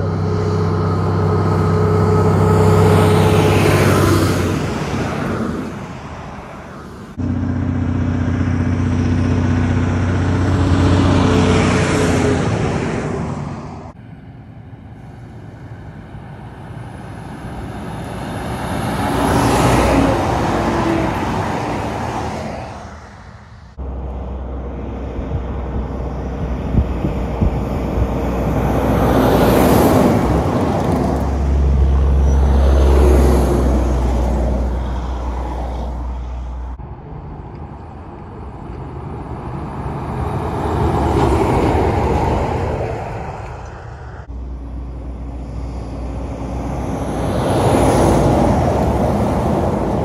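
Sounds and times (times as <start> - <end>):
heavy trucks passing: 0.0 - 50.0
tyre and wind rush: 24.7 - 31.5.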